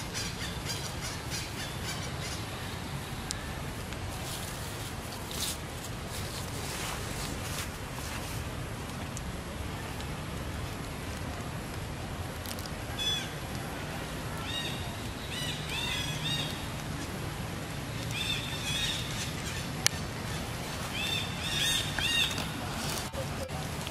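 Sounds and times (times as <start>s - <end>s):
birds chirping: 0.0s - 3.6s, 12.9s - 23.5s.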